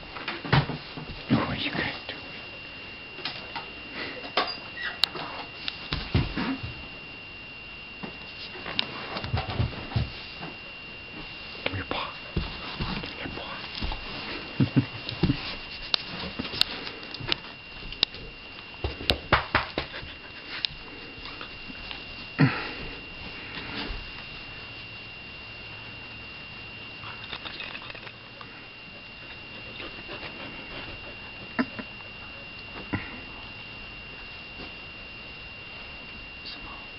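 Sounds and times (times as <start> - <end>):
dog snorting: 29.5 - 31.8
dog sniffing: 29.6 - 31.3.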